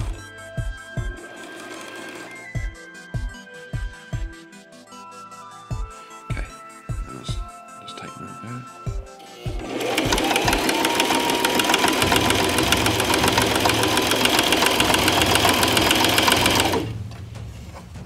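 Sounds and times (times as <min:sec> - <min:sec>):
sewing machine stitching: 0:01.1 - 0:02.6, 0:09.2 - 0:17.0.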